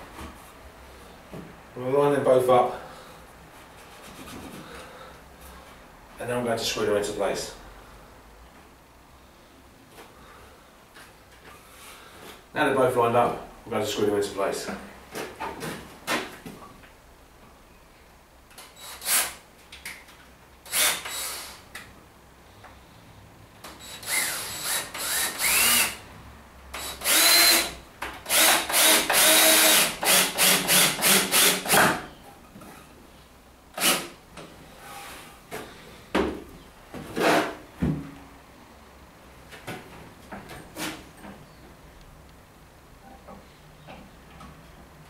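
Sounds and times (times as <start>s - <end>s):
cordless drill driving screws: 18.7s - 19.4s, 20.6s - 21.6s, 23.8s - 26.0s, 26.8s - 32.0s, 33.8s - 34.1s
drill trigger pulses: 20.7s - 21.6s, 23.8s - 26.0s, 26.8s - 32.0s, 33.8s - 34.1s.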